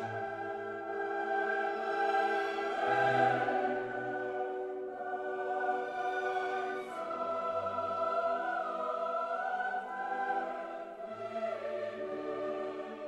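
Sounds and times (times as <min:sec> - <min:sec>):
slow choral background music: 0:00.0 - 0:13.0.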